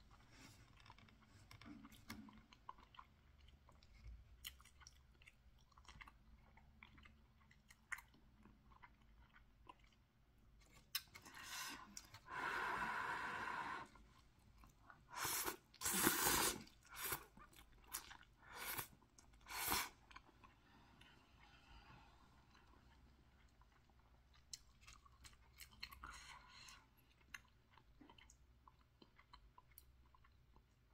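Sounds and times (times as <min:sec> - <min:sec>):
quiet chewing: 0:00.0 - 0:16.0, 0:16.6 - 0:30.9
slurping noodles: 0:15.0 - 0:17.4, 0:18.4 - 0:20.0.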